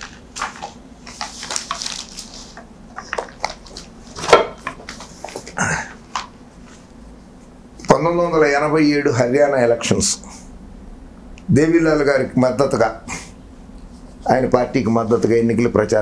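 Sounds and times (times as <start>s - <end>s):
paper rustling: 0.0s - 6.9s.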